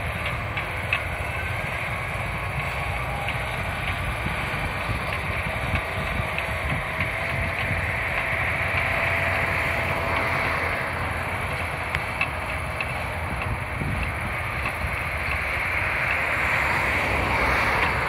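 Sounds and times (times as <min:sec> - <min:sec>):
dozer diesel engine running: 0:00.0 - 0:18.0.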